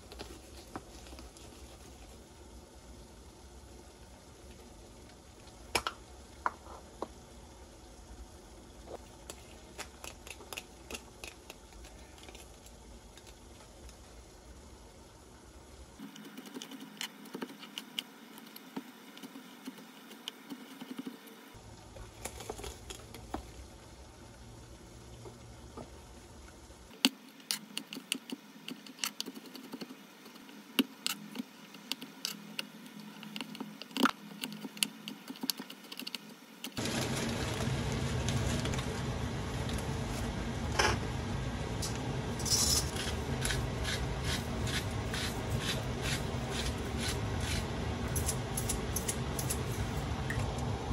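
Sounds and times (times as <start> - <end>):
pot of water boiling: 0.0 - 16.5, 20.4 - 27.0, 36.4 - 50.9.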